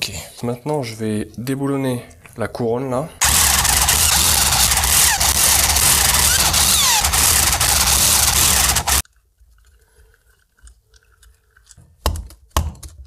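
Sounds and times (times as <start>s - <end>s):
power tool rattling: 3.2s - 9.0s.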